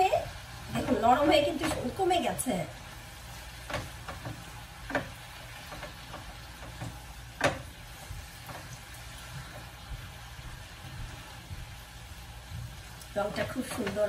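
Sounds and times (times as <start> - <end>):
faint sizzle: 0.0 - 14.0
spatula scraping frying pan: 3.0 - 14.0.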